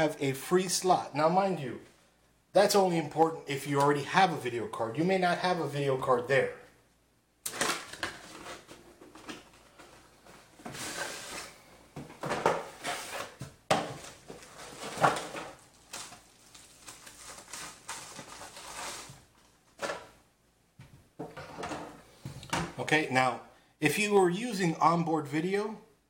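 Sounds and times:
rustling and scraping: 7.5s - 20.2s, 21.2s - 22.8s.

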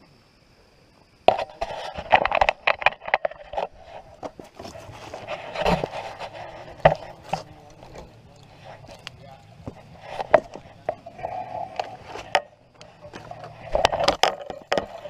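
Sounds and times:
rustling while handling things: 1.6s - 15.0s.

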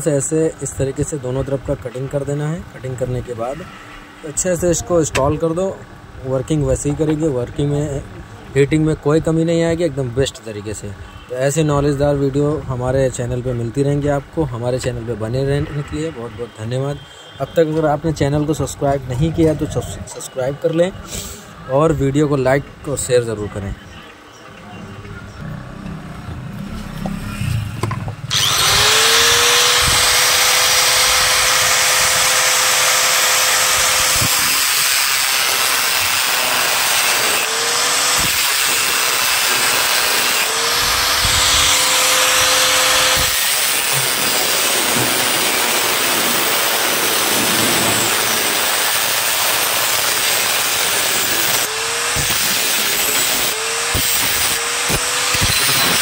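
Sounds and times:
angle grinder cutting metal: 28.2s - 56.0s.

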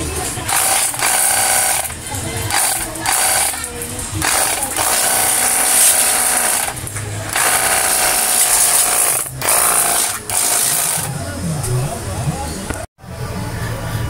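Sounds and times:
pressure washer pump whining: 0.5s - 11.2s.

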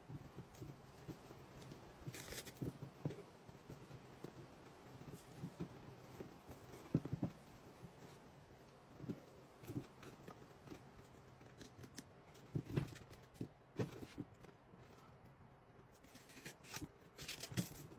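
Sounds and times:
tape crackling: 1.6s - 2.9s.

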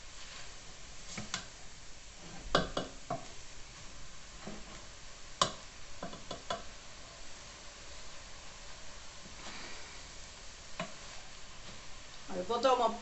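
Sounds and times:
food sizzling: 0.0s - 13.0s
wooden spoon knocking a pot: 2.5s - 3.3s, 5.4s - 6.7s.

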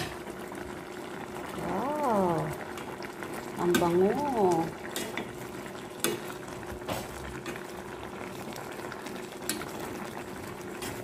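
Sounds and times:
stew bubbling in a pan: 0.0s - 11.0s.

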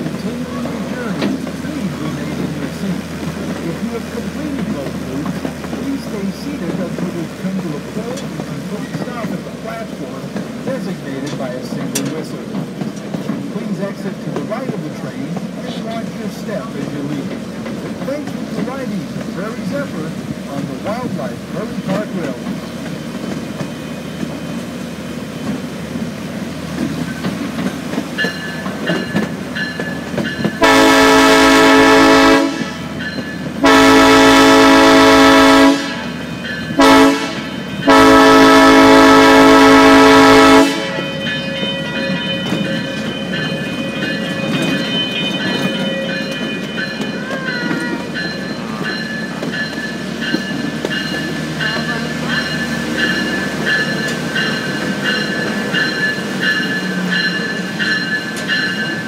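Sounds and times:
train rumbling on rails: 0.0s - 59.0s
train horn blasts: 30.6s - 33.0s, 33.6s - 36.2s, 36.8s - 41.2s.

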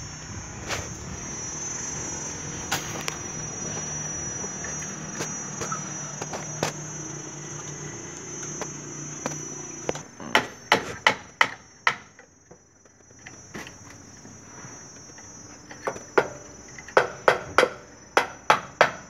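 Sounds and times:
high insect drone: 0.0s - 19.0s
hammer striking wooden batten: 10.2s - 12.1s, 15.9s - 16.4s, 17.0s - 19.0s.

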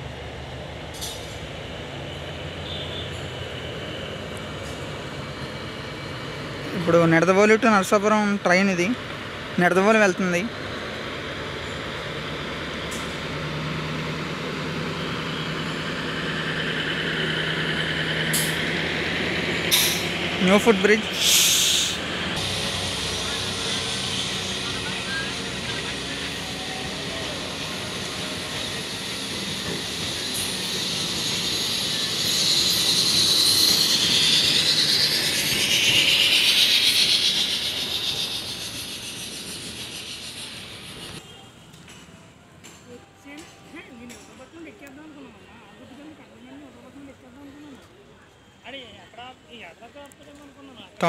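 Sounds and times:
train wheels on rails: 0.0s - 9.6s, 10.5s - 44.8s
diesel train engine humming: 0.0s - 43.2s
high wheel squeal: 19.7s - 41.6s.

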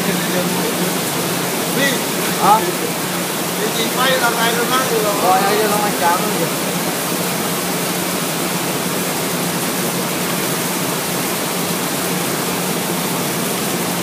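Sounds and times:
machine hissing: 0.0s - 9.0s
low machine hum: 0.0s - 14.0s.

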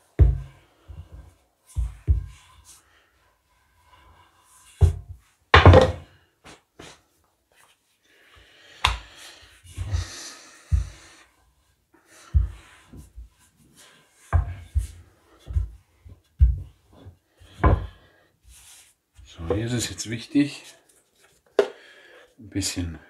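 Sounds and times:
rolling pin rolling dough: 0.0s - 5.9s, 8.8s - 20.0s
rolling pin knocking on countertop: 4.8s - 6.0s.

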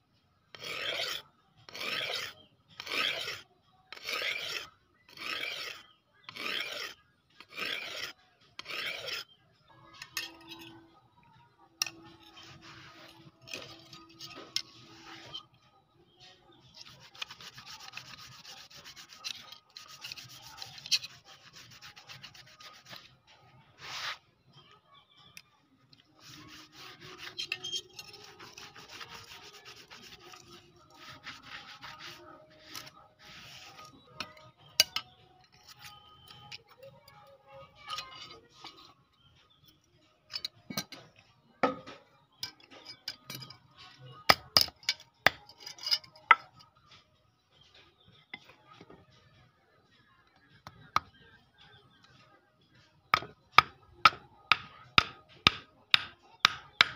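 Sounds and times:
scraping on steel blade: 0.5s - 10.9s, 11.8s - 15.7s, 16.6s - 23.1s, 26.0s - 39.0s, 41.7s - 47.0s.

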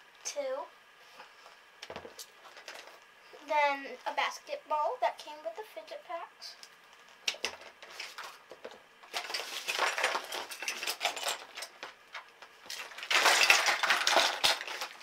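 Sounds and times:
plastic toys clattering: 7.3s - 15.0s.

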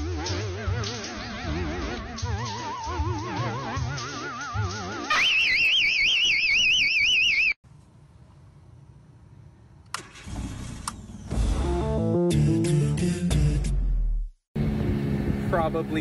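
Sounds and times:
car alarm siren warbling: 0.0s - 7.6s.

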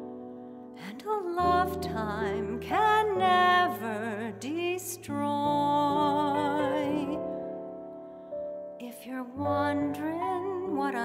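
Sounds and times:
woman singing with vibrato: 0.8s - 7.2s.

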